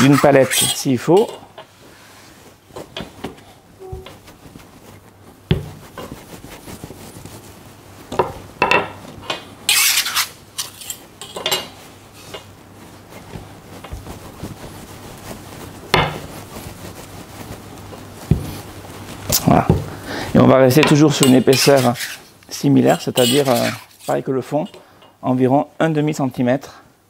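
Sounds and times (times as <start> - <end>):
palette knife scraping worktop: 9.7 - 11.6, 20.8 - 24.2.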